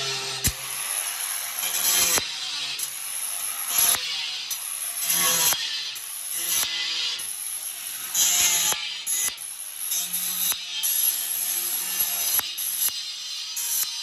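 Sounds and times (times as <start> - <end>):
angle grinder motor hum: 0.0 - 10.6
grinder disc grinding tile: 0.0 - 14.0.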